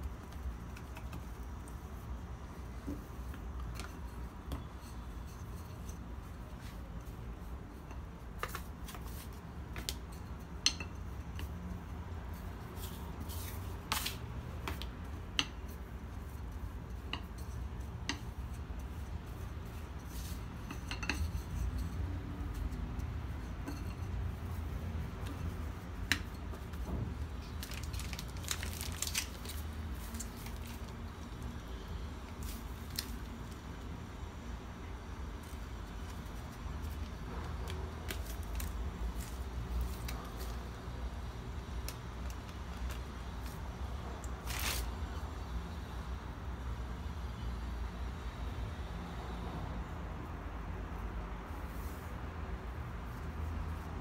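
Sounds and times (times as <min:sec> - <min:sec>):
plastic piping bag crinkling: 0:27.4 - 0:31.0.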